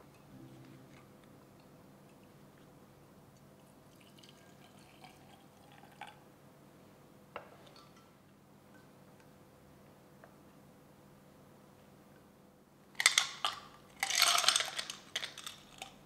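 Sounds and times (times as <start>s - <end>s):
liquid pouring into glass carafe: 3.6s - 6.2s.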